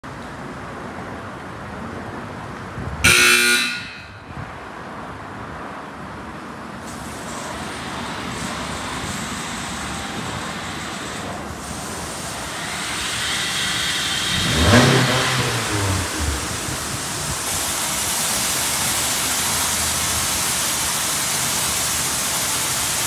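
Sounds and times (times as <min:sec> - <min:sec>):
car wash hiss and hum: 0:00.1 - 0:23.0
loud horn-like honk: 0:03.0 - 0:04.3
higher hiss: 0:06.8 - 0:23.0.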